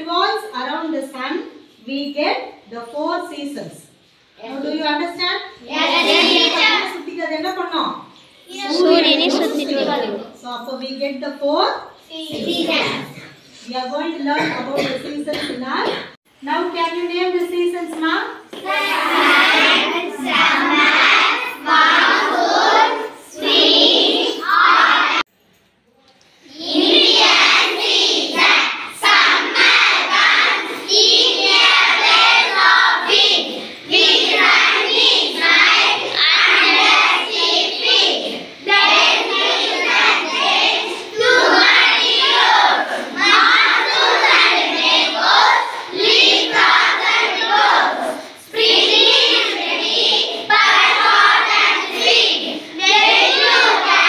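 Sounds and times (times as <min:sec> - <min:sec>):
children chanting in unison: 0:05.6 - 0:07.0, 0:18.5 - 0:25.2, 0:26.4 - 0:54.0.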